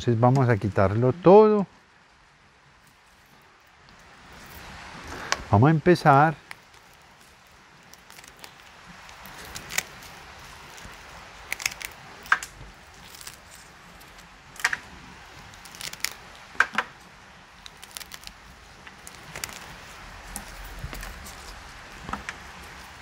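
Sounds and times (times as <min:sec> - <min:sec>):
pruning shears snipping roots: 0:06.4 - 0:16.9.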